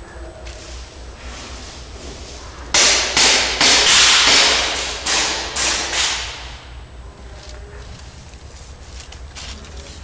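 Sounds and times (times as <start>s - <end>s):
airsoft gun shots echoing: 2.8s - 6.5s.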